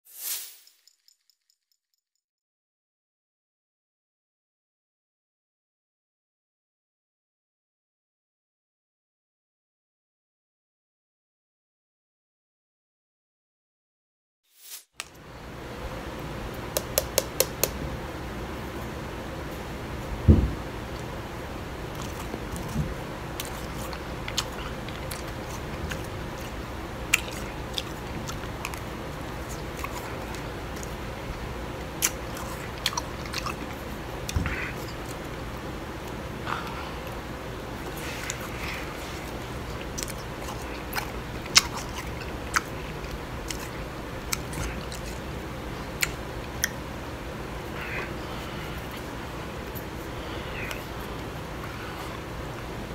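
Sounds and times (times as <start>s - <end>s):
person chewing crunchy ice: 23.4s - 26.5s, 27.1s - 30.9s, 39.7s - 45.2s.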